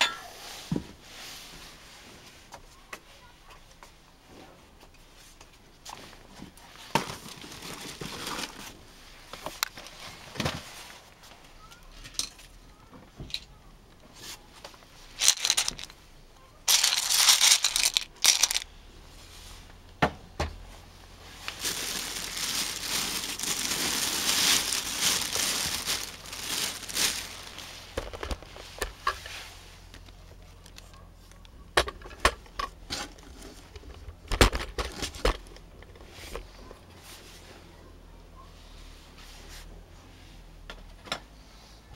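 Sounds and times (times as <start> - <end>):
plastic bag rustling: 6.7 - 8.8, 15.0 - 16.0, 16.7 - 18.7, 21.2 - 30.0.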